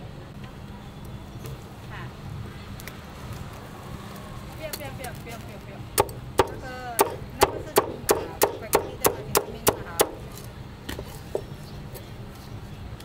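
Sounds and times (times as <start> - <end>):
cleaver chopping on block: 6.0 - 10.4.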